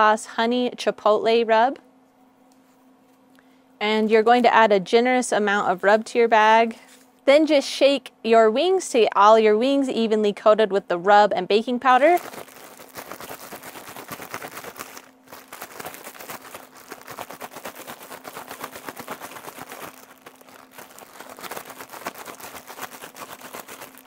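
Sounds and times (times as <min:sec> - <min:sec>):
plastic bag crinkling and rustling: 0:11.9 - 0:24.0.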